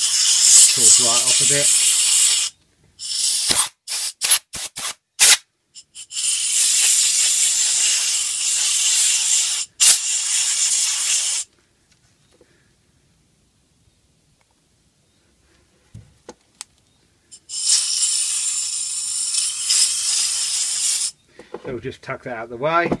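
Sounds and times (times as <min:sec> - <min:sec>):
compressed air blasts: 0:00.0 - 0:11.5, 0:17.3 - 0:21.2.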